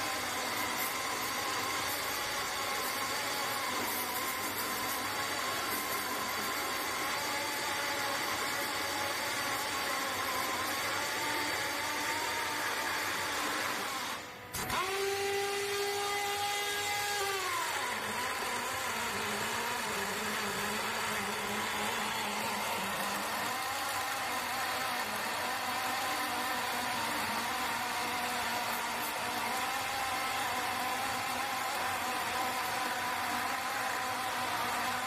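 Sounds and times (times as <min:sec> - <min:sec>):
pneumatic chainsaw cutting log: 0:00.0 - 0:35.0.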